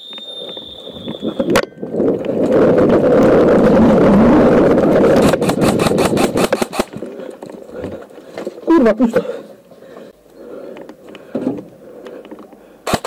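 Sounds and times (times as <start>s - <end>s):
fast string of sharp clicks: 4.8s - 7.0s.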